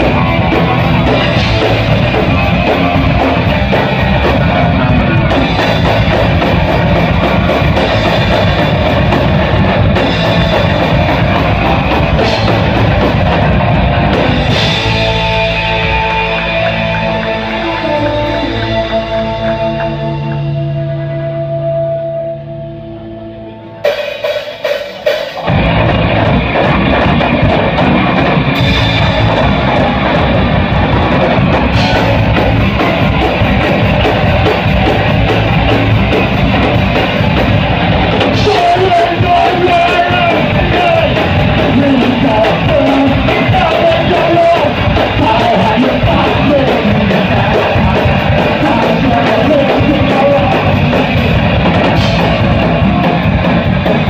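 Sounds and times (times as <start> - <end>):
live rock band playing: 0.0 - 54.0
drum hits: 23.9 - 54.0.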